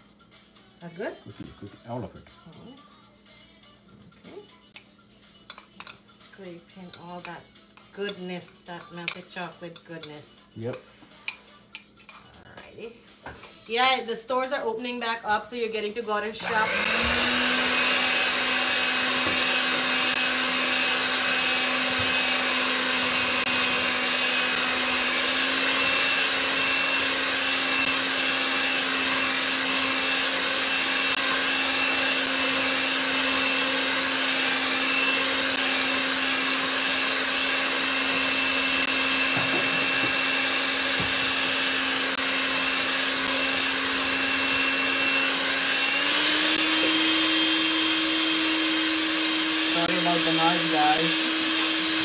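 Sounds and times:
electric hand mixer running: 0:13.7 - 0:52.0.

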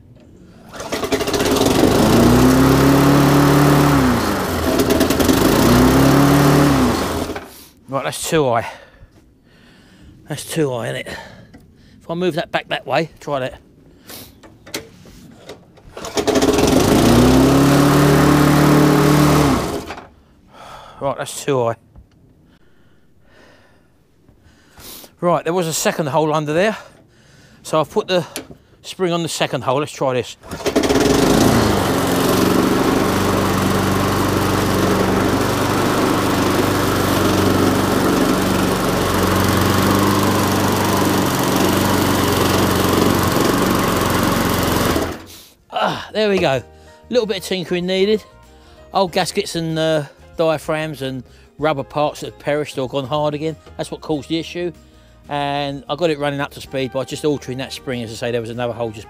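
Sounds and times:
lawnmower engine running: 0:00.0 - 0:07.6, 0:14.7 - 0:20.1, 0:30.4 - 0:45.5.

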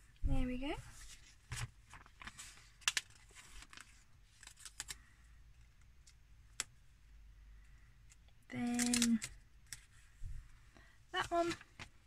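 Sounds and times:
paper rustling: 0:00.9 - 0:05.1, 0:11.2 - 0:12.0
stickers peeling ticks and crackles: 0:08.1 - 0:09.8.

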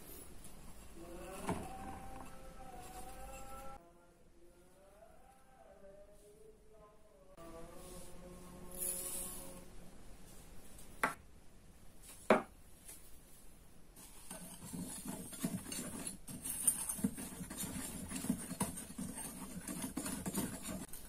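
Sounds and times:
whisk stirring in glass bowl: 0:14.0 - 0:21.0.

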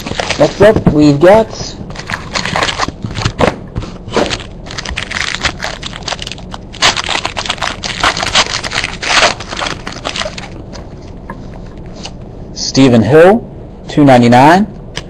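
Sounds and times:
foil wrapper tearing and crinkling: 0:00.0 - 0:00.7, 0:01.9 - 0:03.4, 0:04.1 - 0:10.7.

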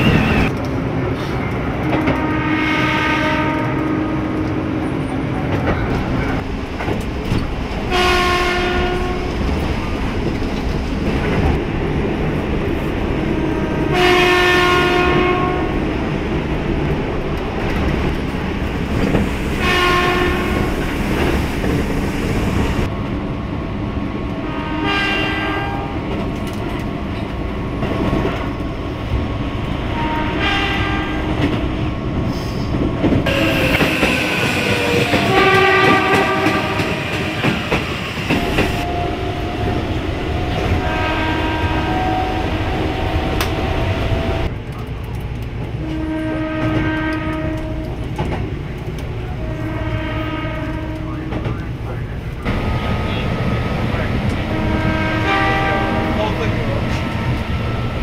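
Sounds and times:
train rumble and clickety-clack: 0:00.0 - 0:58.0
train horn blasts: 0:01.9 - 0:04.4, 0:07.9 - 0:09.4, 0:13.8 - 0:15.8, 0:19.6 - 0:20.7, 0:24.4 - 0:26.0, 0:29.9 - 0:31.5, 0:33.2 - 0:37.6, 0:38.4 - 0:43.4, 0:45.8 - 0:48.1, 0:49.3 - 0:51.4, 0:54.4 - 0:56.5.

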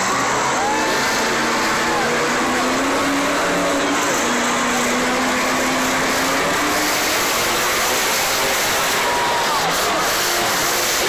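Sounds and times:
monster truck engine running: 0:00.0 - 0:11.0.

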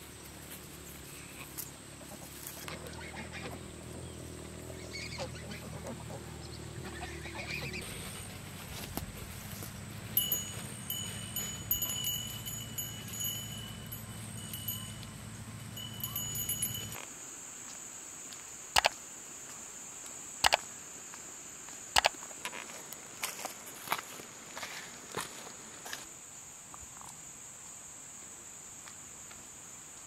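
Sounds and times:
low outdoor hum: 0:00.0 - 0:26.1
insects trilling: 0:00.0 - 0:30.0
footsteps on road: 0:07.8 - 0:15.2, 0:21.7 - 0:26.1
high insect drone: 0:07.8 - 0:30.0.

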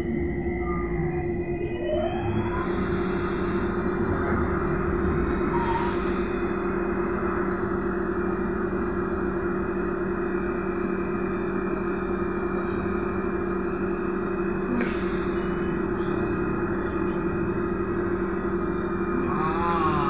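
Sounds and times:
two-tone electric hum: 0:00.0 - 0:20.0.

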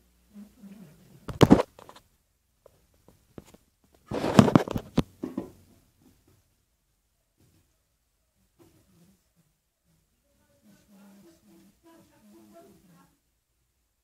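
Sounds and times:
rustling and bumping handling noise: 0:01.3 - 0:06.4.

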